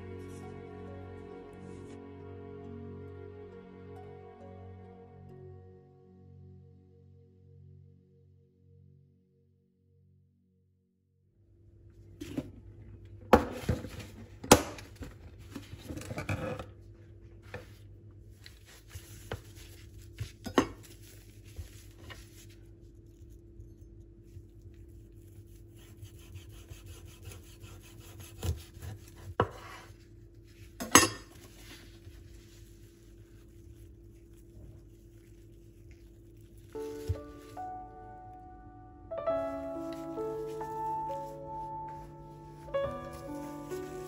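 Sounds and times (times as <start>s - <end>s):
steady low hum: 16.8s - 44.0s
plastic wrap rubbing: 18.3s - 29.3s, 31.4s - 37.7s, 39.3s - 44.0s.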